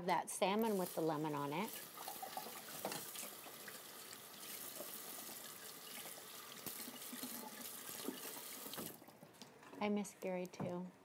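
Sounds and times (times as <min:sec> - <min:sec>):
tap water running into sink: 0:00.6 - 0:09.0.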